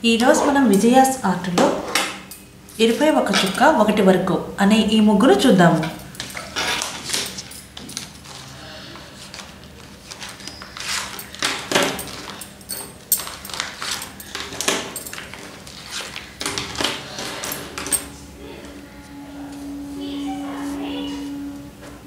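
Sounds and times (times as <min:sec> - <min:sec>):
faint steady hum: 0:10.4 - 0:22.0
clicks clinks and knocks: 0:10.9 - 0:15.6.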